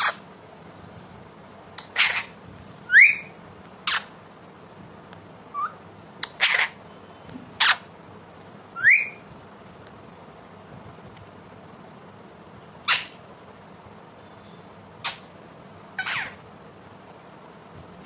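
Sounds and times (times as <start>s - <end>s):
parakeet squawking: 0.0s - 0.3s, 1.8s - 4.2s, 5.5s - 6.8s, 7.6s - 7.9s, 8.8s - 9.2s, 12.8s - 13.2s, 15.0s - 15.3s, 16.0s - 16.4s.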